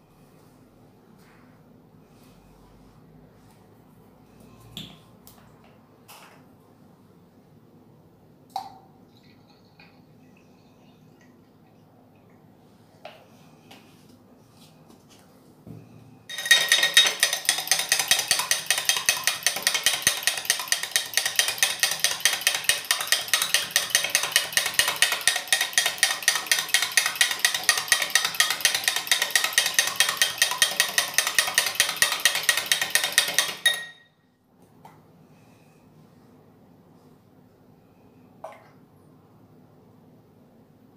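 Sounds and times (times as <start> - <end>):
metal spoon clinking in a glass: 16.3 - 21.7, 32.7 - 34.1.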